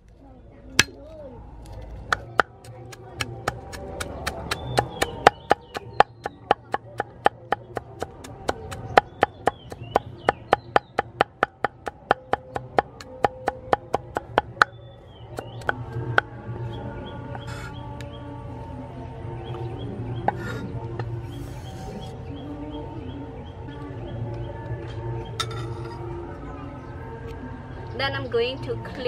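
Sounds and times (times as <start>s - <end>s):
cleaver chopping on wooden block: 2.1s - 14.8s, 15.4s - 16.3s.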